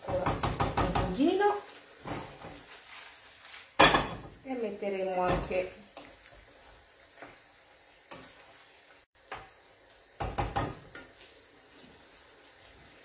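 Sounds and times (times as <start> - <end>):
wooden spoon knocking pan: 0.0 - 1.4, 10.2 - 11.1
faint sizzle: 0.0 - 13.0.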